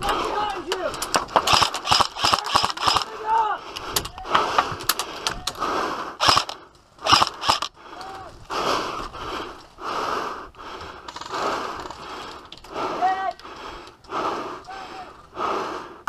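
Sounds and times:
sharp cracks: 0.0 - 5.6, 6.2 - 8.1
heavy breathing: 0.0 - 16.0.

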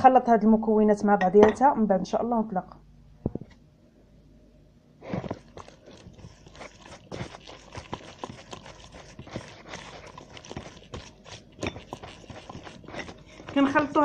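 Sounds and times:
hand squelching sticky dough: 5.0 - 14.0.

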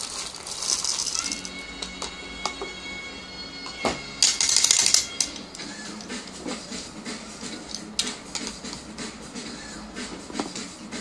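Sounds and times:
coffee beans rattling into grinder: 0.0 - 1.6, 4.2 - 5.2
background music with held notes: 0.8 - 11.0.

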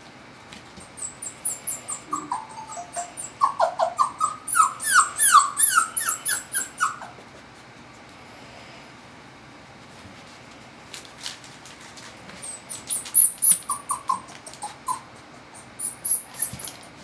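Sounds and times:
puppy whining: 0.7 - 7.3, 12.4 - 17.0.

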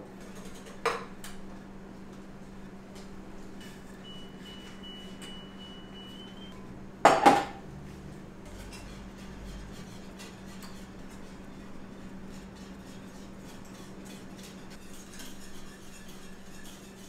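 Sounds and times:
steady low hum: 0.0 - 17.0
kitchenware clattering: 7.1 - 7.6.

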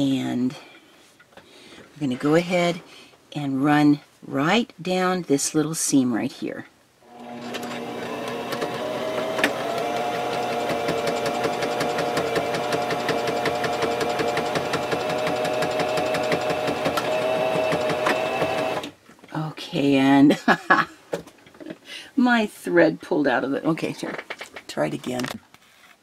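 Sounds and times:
sewing machine stitching: 7.1 - 18.9.

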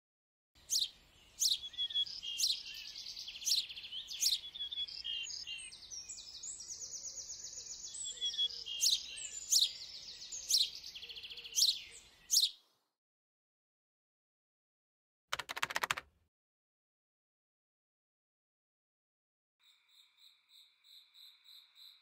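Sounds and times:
small birds chirping: 0.6 - 12.8.

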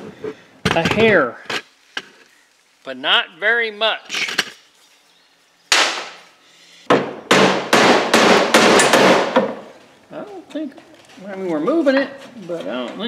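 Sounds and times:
hammer striking metal punch: 6.9 - 9.6.

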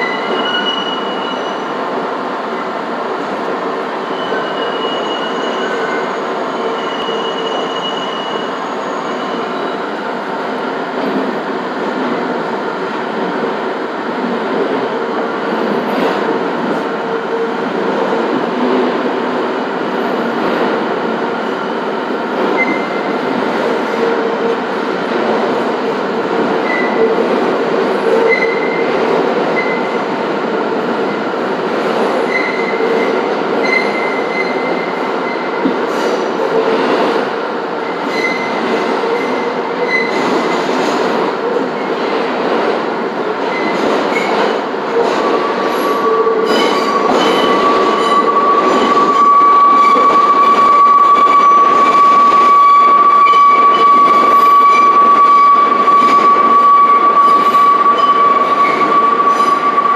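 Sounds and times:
subway wheels rumbling on rails: 0.0 - 59.9
high wheel squeal: 4.1 - 9.8, 45.6 - 59.9.

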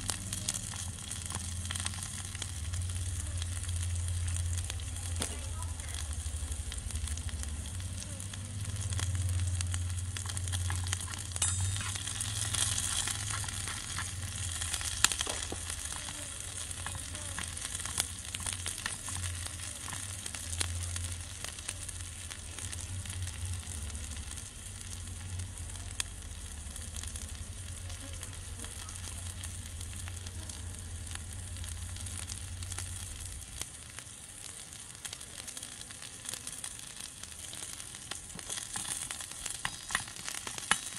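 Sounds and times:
food sizzling in wok: 0.0 - 40.9
spatula scraping metal wok: 10.7 - 15.8.

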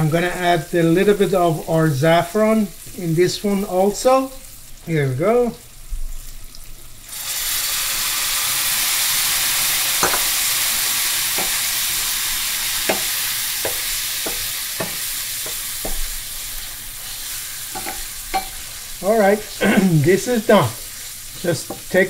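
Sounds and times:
food sizzling in a skillet: 0.0 - 22.0
utensil clicking against skillet: 17.7 - 18.6.

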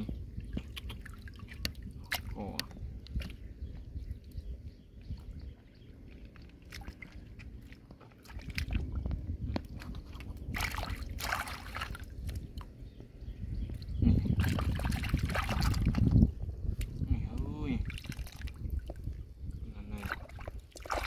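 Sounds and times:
water splashing in tide pool: 0.0 - 3.4, 5.2 - 12.7, 14.4 - 16.2, 17.7 - 21.0.

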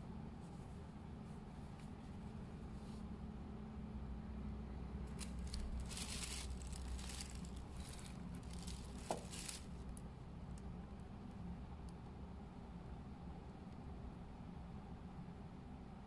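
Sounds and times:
wallet rustling in cardboard box: 5.2 - 9.9.

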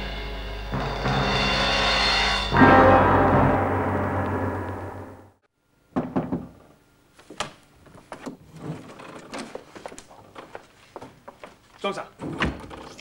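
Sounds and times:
timpani music sting: 0.0 - 5.5
knocks and clunks: 5.9 - 6.7, 12.2 - 13.0.

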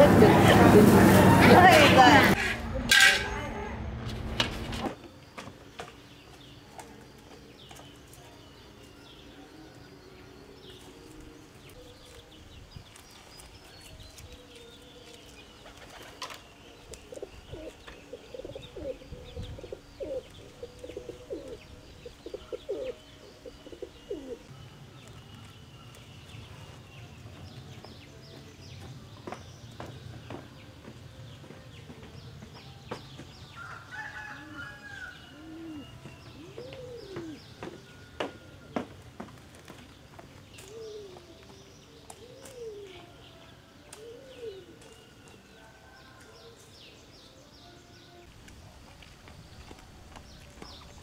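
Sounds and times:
doves cooing: 14.5 - 24.5, 33.6 - 38.8, 39.6 - 45.2.

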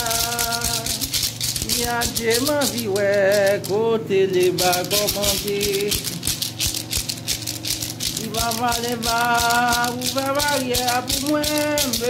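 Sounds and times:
hand rattle shaken: 0.0 - 12.0
person chanting a sung prayer: 8.2 - 12.0.

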